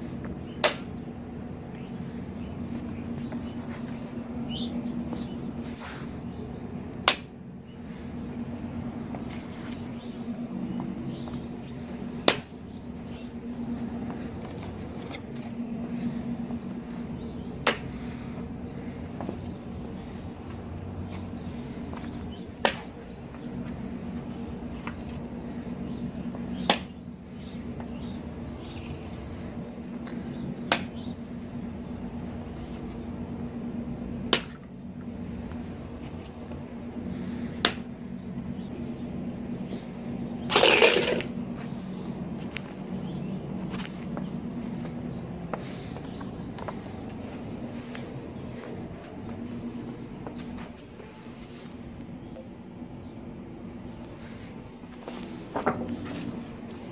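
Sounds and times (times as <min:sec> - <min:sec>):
steady low hum: 0:00.0 - 0:56.9
eggs smashing: 0:40.5 - 0:41.3.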